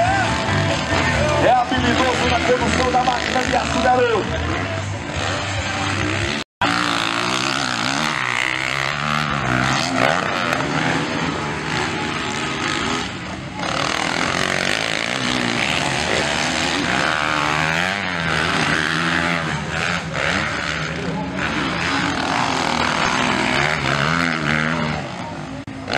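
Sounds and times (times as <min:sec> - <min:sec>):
motocross bike engines revving: 0:00.0 - 0:25.9.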